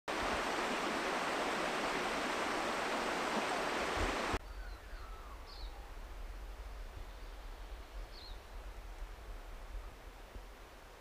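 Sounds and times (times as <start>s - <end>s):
stream water rushing: 0.1s - 4.4s
faint bird chirps: 4.4s - 6.0s.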